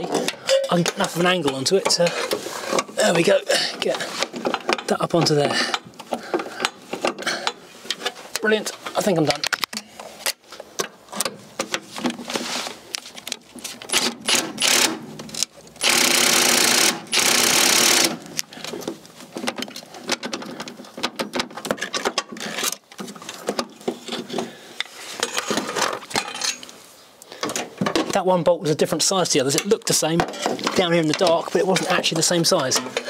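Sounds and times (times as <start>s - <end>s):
rapid ratchet clicking: 13.9s - 15.0s, 15.8s - 18.2s.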